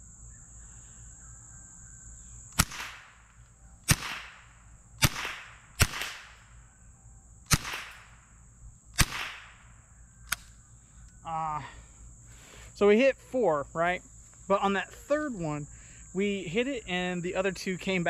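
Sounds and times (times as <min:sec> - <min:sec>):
crickets chirring: 0:00.0 - 0:18.0
rifle shots with echo: 0:02.6 - 0:03.2, 0:03.9 - 0:06.5, 0:07.5 - 0:08.2, 0:09.0 - 0:09.6.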